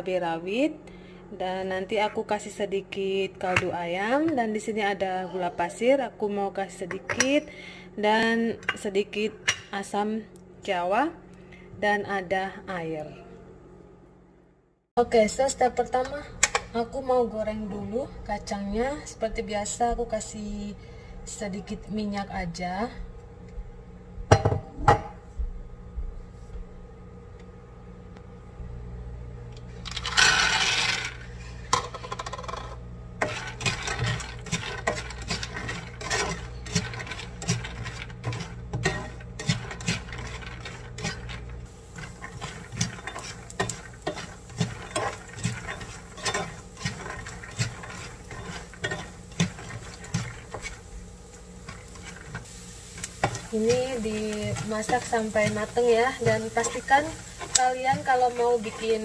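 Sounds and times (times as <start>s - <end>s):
peanuts clattering against pan: 29.8s - 31.2s, 31.8s - 51.0s, 51.6s - 59.0s
peanuts poured into a pan: 29.8s - 31.2s
spatula stirring peanuts: 33.2s - 59.0s.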